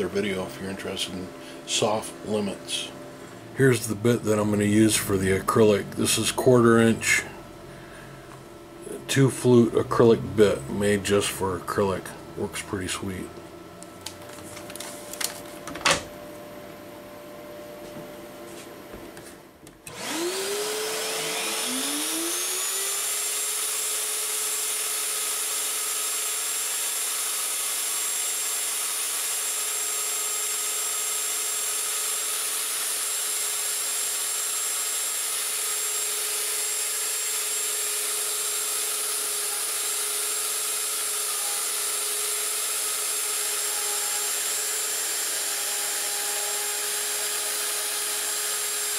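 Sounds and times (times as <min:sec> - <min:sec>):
router spindle whine: 0:00.0 - 0:07.4, 0:19.8 - 0:48.9.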